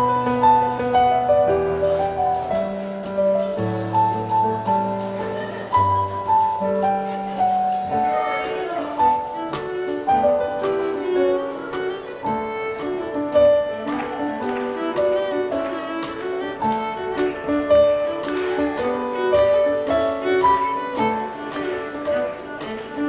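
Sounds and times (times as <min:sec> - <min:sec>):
fiddle melody: 0:00.0 - 0:23.0
piano chords: 0:00.0 - 0:23.0.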